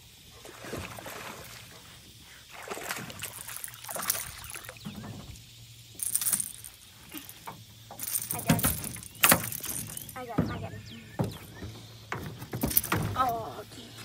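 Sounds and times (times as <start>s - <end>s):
fish splashing at surface: 2.5s - 4.9s
fish thumping on boat floor: 8.0s - 13.6s.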